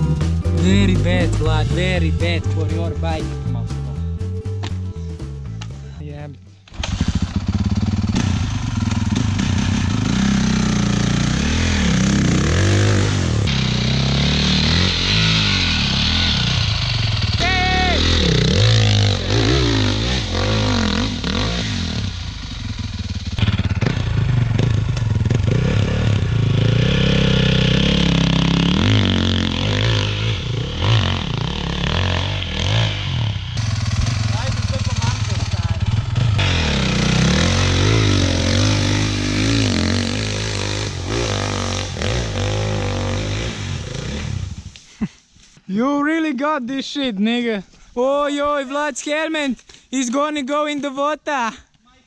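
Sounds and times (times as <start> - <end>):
dirt bike engines revving: 6.8 - 45.3.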